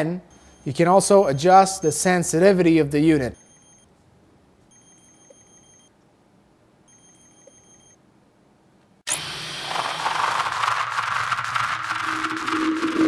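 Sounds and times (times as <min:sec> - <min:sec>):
loud rushing noise: 0:09.1 - 0:13.0.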